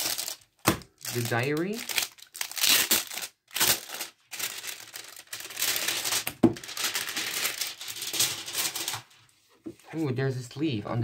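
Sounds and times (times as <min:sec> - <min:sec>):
packaging rustling and crinkling: 0:00.0 - 0:09.3.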